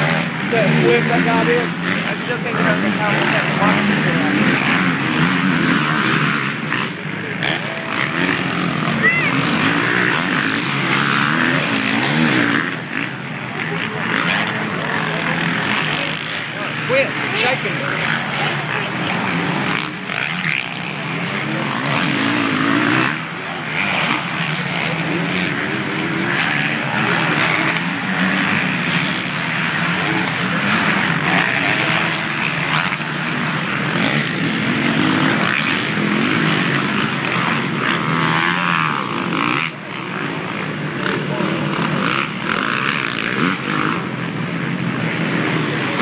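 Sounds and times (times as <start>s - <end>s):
dirt bike engines revving: 0.0s - 46.0s.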